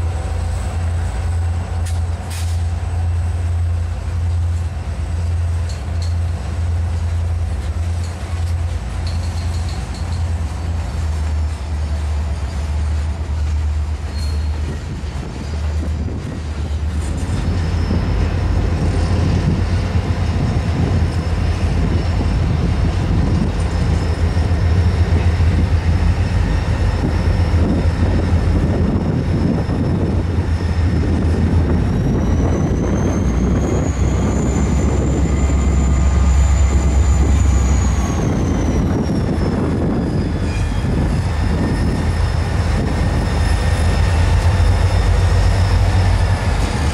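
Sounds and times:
diesel locomotives rumbling: 0.0s - 46.9s
railcars clattering on wheels: 0.0s - 46.9s
high wheel squeal: 11.4s - 13.2s, 14.0s - 16.4s, 17.1s - 46.9s.

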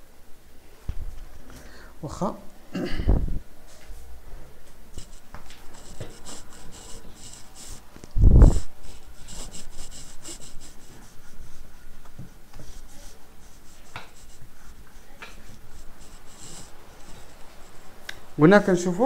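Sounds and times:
eraser rubbing on whiteboard: 5.0s - 18.0s.

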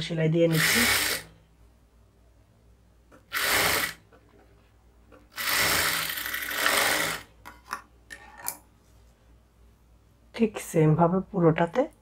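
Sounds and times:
industrial sewing machine running: 5.4s - 7.2s.

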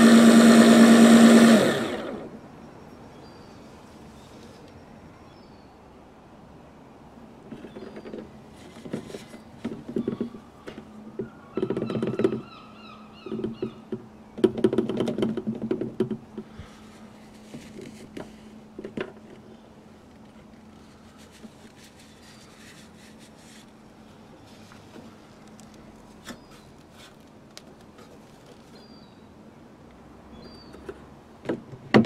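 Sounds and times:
cloth rag rubbing on plastic hose: 20.7s - 24.9s.

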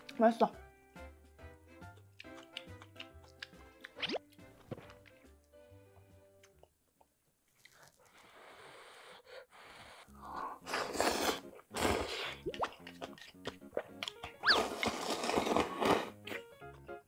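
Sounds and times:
person slurping noodles: 9.8s - 13.2s, 14.4s - 16.4s.

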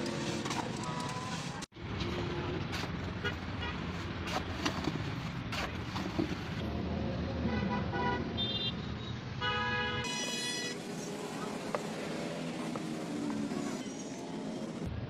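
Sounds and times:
vehicle horns tooting: 7.5s - 10.9s
traffic rumble: 10.0s - 15.0s.

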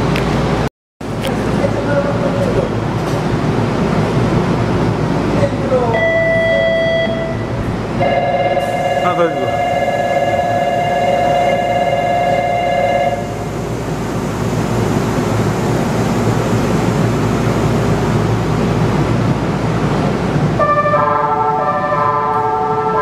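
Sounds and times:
steady electronic tone: 5.9s - 16.4s.

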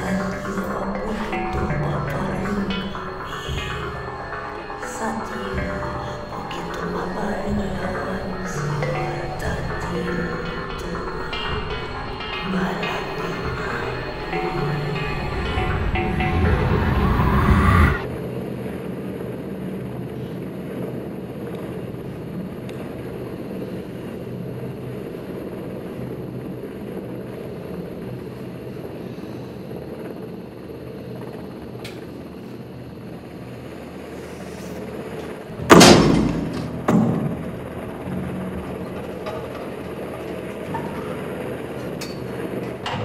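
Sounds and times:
rising swell: 0.0s - 18.5s, 33.0s - 43.0s
low rumbling drone: 0.0s - 43.0s
loud booming impacts: 35.6s - 38.0s.

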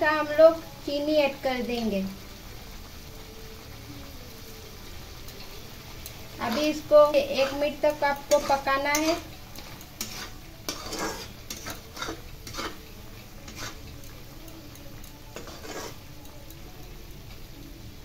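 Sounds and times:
low hiss: 0.0s - 18.0s
spatula scraping metal pan: 6.4s - 12.8s, 13.4s - 13.9s, 15.4s - 16.0s.

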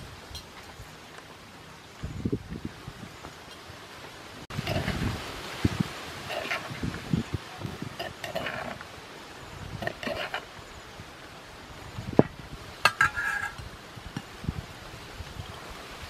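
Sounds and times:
metal spoon scraping a mortar: 4.6s - 5.0s, 6.3s - 6.8s, 8.0s - 8.8s, 9.8s - 10.5s, 12.9s - 13.6s.

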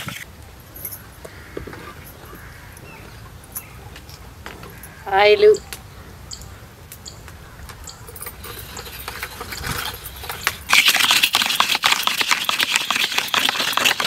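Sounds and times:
coconut scraping on grater: 8.5s - 14.0s.

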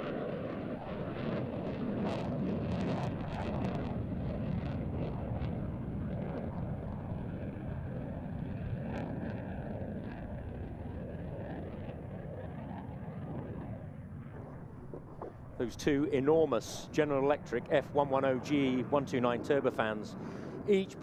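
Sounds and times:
fighter jet rumbling overhead: 0.0s - 21.0s
sharp crackles: 11.7s - 17.8s.

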